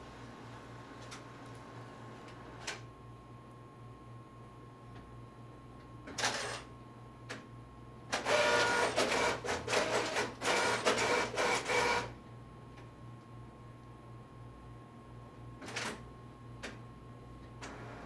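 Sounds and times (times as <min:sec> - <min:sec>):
printer motor whirring: 0:08.1 - 0:12.1.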